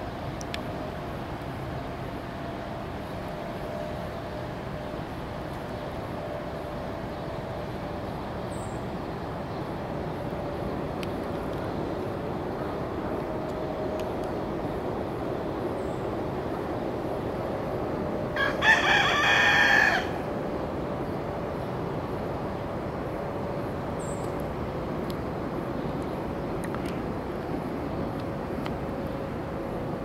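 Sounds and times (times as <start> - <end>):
rooster crowing: 18.4 - 20.3.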